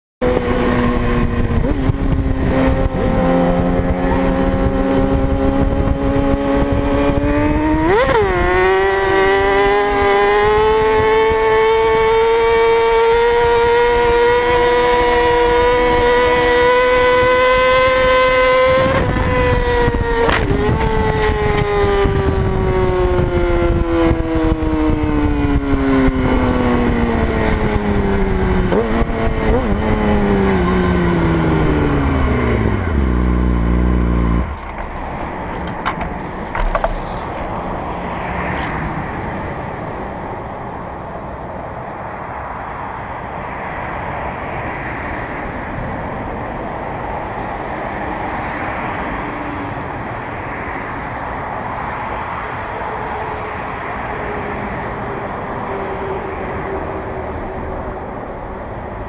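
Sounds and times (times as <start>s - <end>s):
high-revving motorcycle engine: 0.2s - 37.4s
rushing noise: 26.4s - 59.0s.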